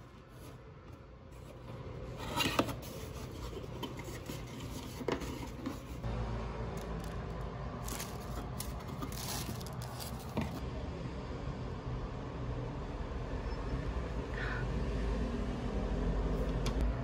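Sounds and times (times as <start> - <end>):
tissue paper rustling: 7.8 - 10.6.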